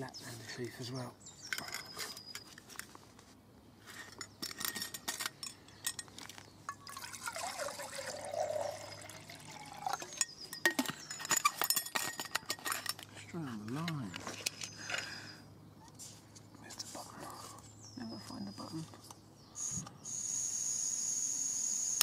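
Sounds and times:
light metal clinks: 1.4 - 2.6, 4.0 - 13.1
water pouring into metal cup: 6.8 - 10.2.

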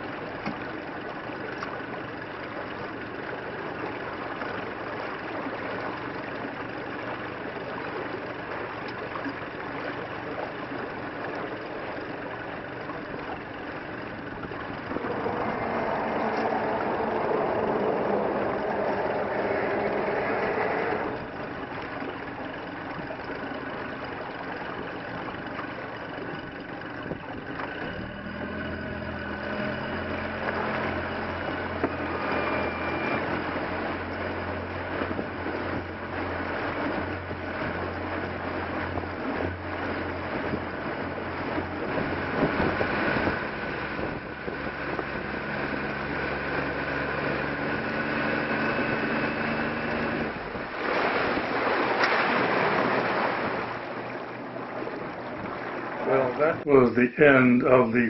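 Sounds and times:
boat engine hum: 0.0 - 58.0
water over boat hull: 0.0 - 58.0
wind noise: 33.0 - 55.7.

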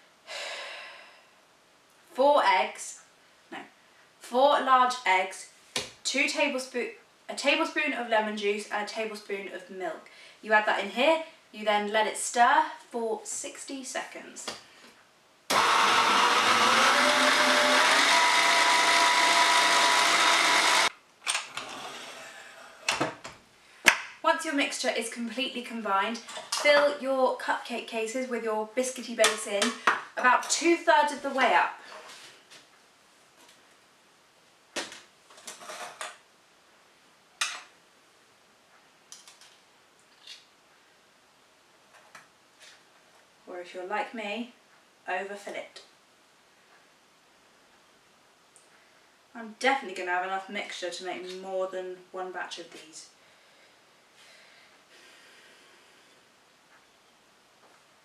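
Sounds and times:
electric stand mixer running: 15.5 - 20.9.

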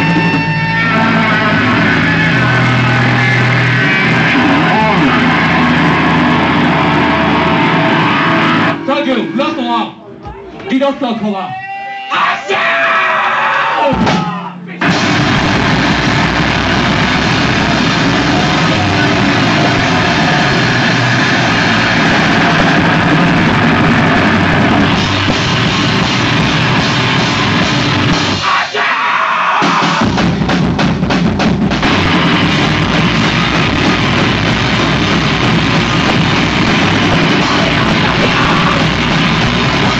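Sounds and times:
distorted electric guitars: 0.0 - 10.2, 13.4 - 39.9
pounding drums: 13.9 - 28.6, 29.6 - 39.9.

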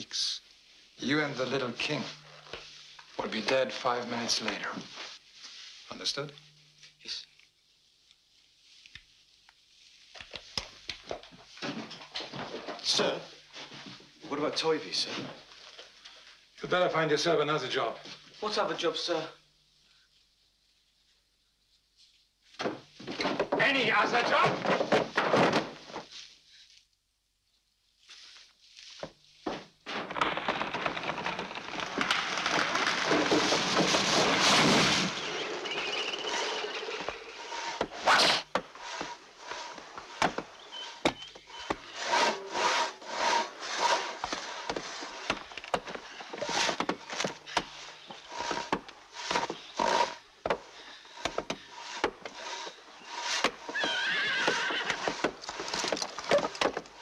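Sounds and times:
wavering high-pitched call: 35.2 - 37.4
crosscut saws rasping through logs: 35.2 - 45.5, 46.3 - 53.8.

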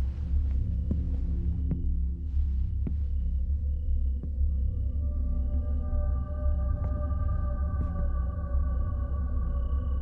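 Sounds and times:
deep steady hum: 0.0 - 10.0.

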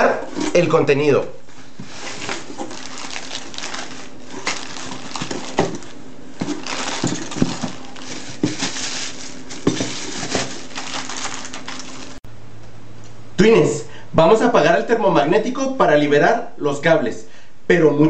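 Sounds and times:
cardboard and plastic bags rustling: 0.0 - 12.2
faint steady hum: 0.0 - 18.0.

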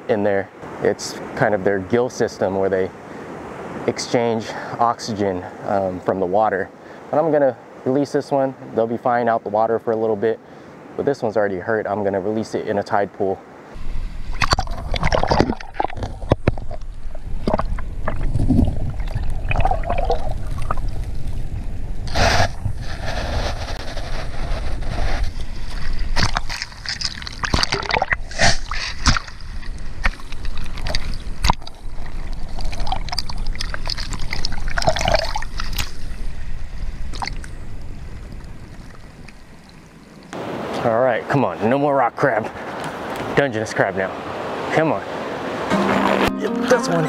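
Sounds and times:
water surges: 0.0 - 47.0
underwater water sloshing: 13.5 - 40.8.

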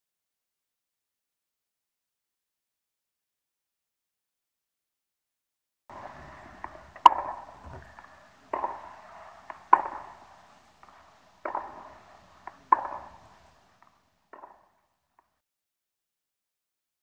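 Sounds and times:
racket hitting tennis ball: 5.9 - 13.6.

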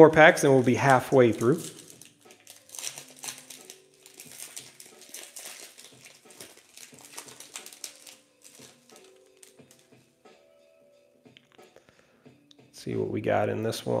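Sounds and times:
foil card pack crinkling: 0.4 - 9.9.

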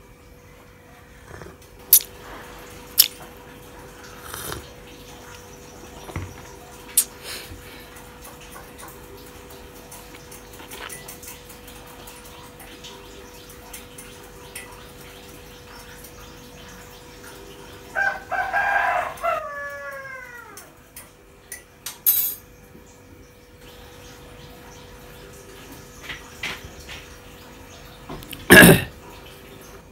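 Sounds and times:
clatter at sink: 8.0 - 12.9, 26.0 - 27.2
rooster crowing: 17.9 - 20.8.

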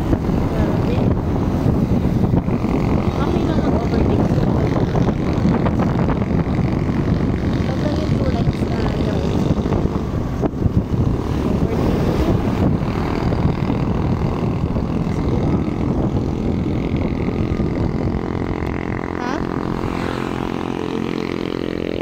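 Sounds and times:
scooter engine running: 0.0 - 22.0
wind buffeting microphone: 0.0 - 22.0.

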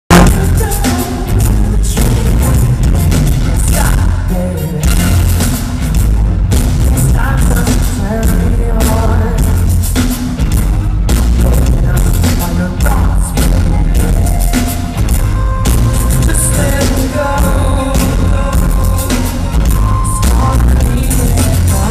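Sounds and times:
sharp drum hits: 0.1 - 1.0
man singing lead: 0.1 - 5.7, 6.8 - 10.2, 11.0 - 21.9
live band playing pop: 0.1 - 21.9.

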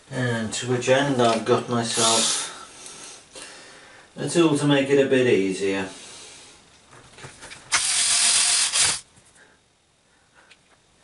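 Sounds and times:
electric screwdriver running: 7.7 - 9.0.

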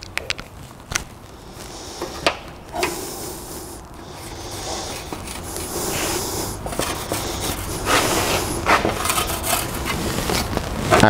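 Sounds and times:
sheet metal rolling rumble: 0.6 - 11.0
metal knocks and scrapes: 6.6 - 11.0.

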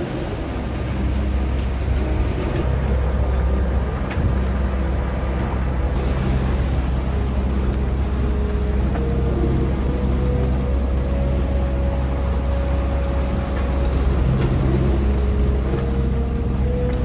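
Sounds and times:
boat engine humming: 0.0 - 17.0
wind and water hiss: 0.0 - 17.0.

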